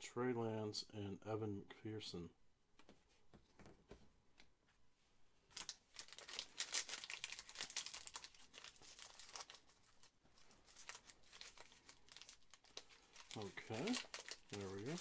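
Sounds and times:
foil wrapper crinkling and tearing: 5.5s - 15.0s.

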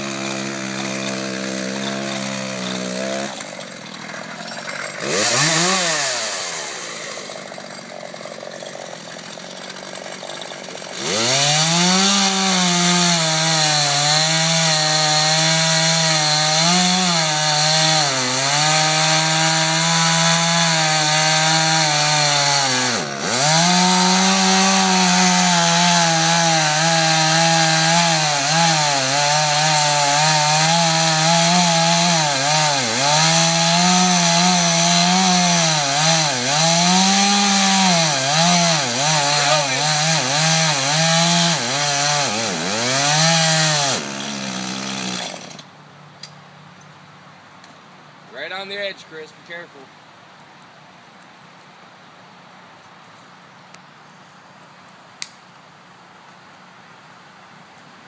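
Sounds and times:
chainsaw cutting wood: 0.0s - 45.7s.

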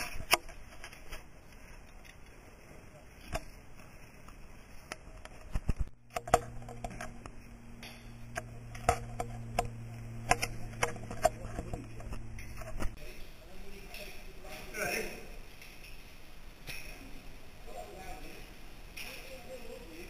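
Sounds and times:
steady low hum: 0.0s - 20.0s
metallic clinks of caving gear: 18.9s - 19.8s.

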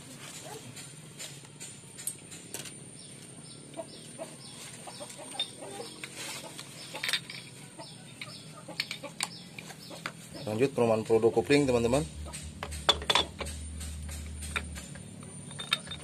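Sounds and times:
bird-like calls: 3.0s - 7.1s.

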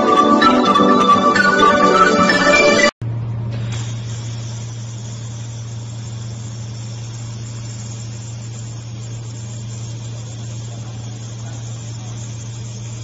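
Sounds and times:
laser welding machine humming: 3.3s - 13.0s.

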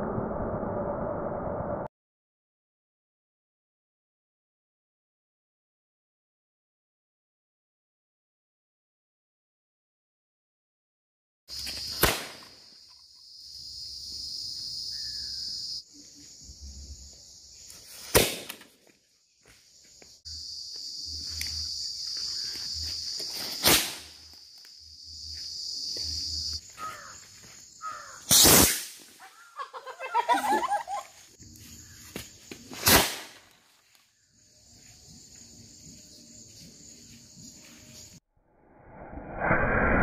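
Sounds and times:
firework rocket bangs: 12.0s - 12.4s, 18.1s - 18.6s.

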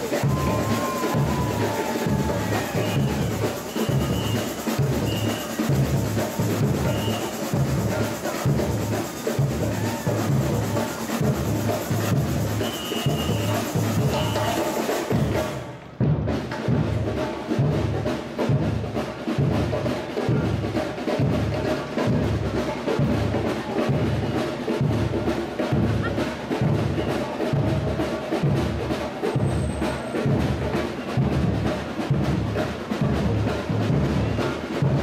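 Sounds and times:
deep drum beats: 0.0s - 14.5s
samba percussion band: 0.0s - 35.0s.

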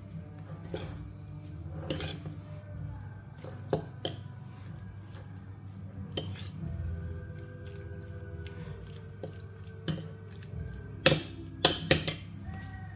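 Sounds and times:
metal spoon clinking on china bowl: 1.8s - 2.4s, 11.0s - 12.3s.

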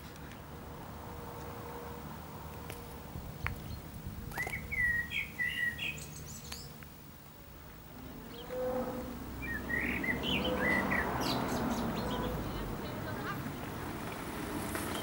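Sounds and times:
songbirds chirping: 2.5s - 14.2s.

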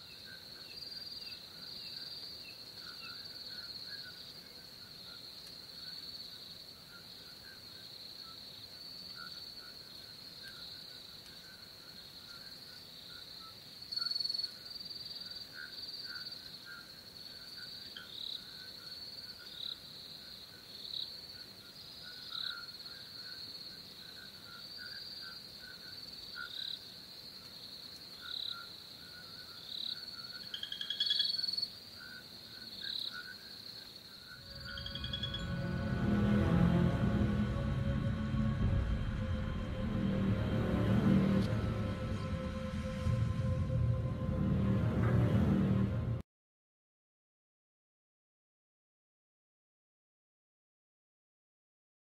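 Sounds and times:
crickets chirping: 0.0s - 46.1s
lower chirping: 29.7s - 33.5s, 34.1s - 36.2s
loud chirp: 34.4s - 36.0s.

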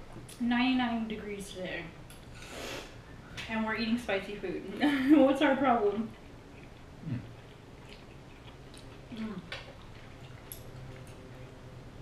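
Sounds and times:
faint low hum: 0.0s - 12.0s
chewing and slurping noodles: 6.1s - 11.6s
murmured mouth sounds: 7.0s - 8.5s.

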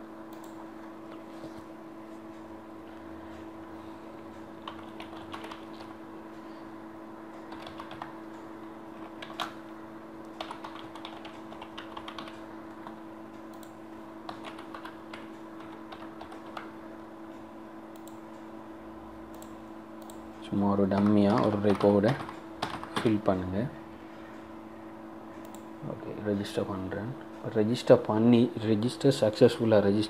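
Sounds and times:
steady low hum: 0.0s - 30.0s
typing on keyboard: 4.6s - 5.9s, 7.5s - 8.2s, 9.0s - 9.6s, 10.4s - 13.0s, 13.6s - 16.7s, 20.9s - 23.2s.

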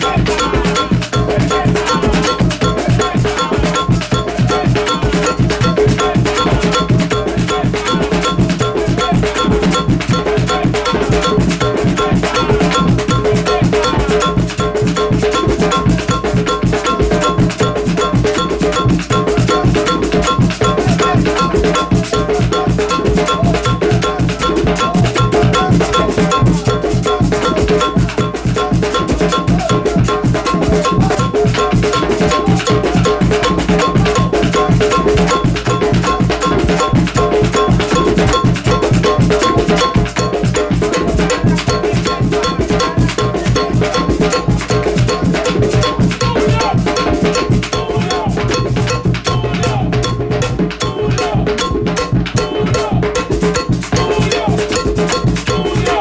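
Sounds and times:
drum beaten with sticks: 0.0s - 56.0s
group hand drumming: 0.0s - 56.0s
log drum played by hand: 0.0s - 56.0s
ringing metallic tick: 33.8s - 56.0s.

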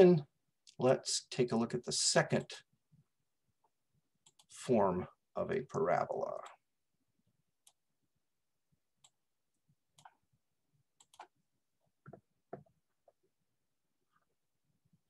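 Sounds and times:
faint clicks and taps: 11.0s - 13.3s.

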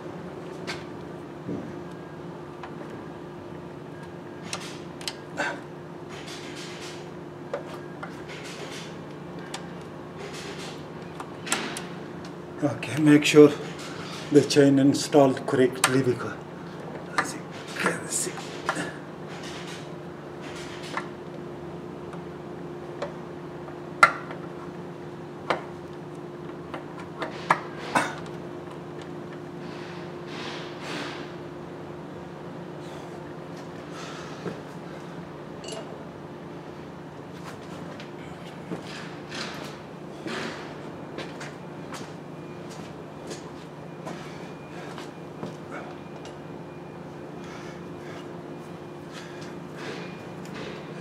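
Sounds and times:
steady background hum: 0.0s - 51.0s
light metallic clinks and knocks: 35.6s - 35.9s.

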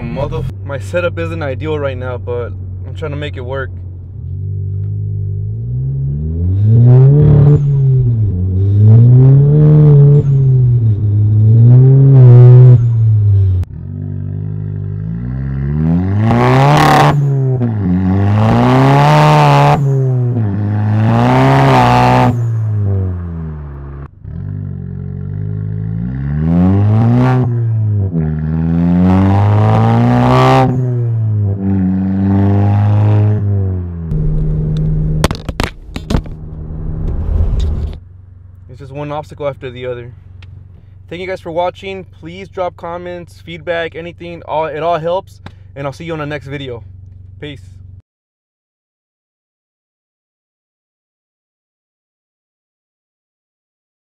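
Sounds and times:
car engine revving: 0.0s - 41.3s.

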